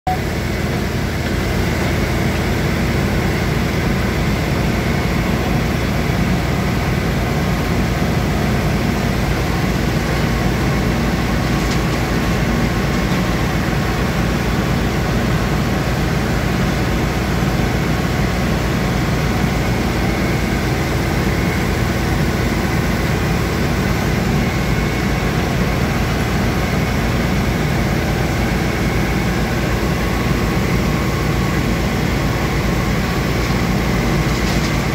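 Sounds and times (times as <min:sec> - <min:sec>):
diesel engines running: 0:00.1 - 0:34.9
grab buckets loading soil: 0:11.3 - 0:13.7, 0:33.0 - 0:34.9.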